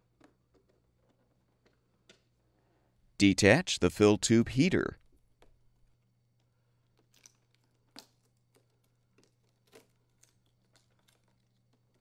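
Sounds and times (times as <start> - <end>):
faint foil crinkling and ticking: 6.9 - 12.0.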